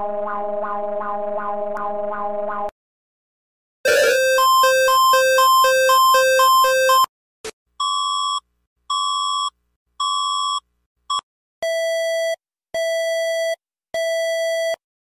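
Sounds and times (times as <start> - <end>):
electronic alert beeps: 3.9 - 7.1.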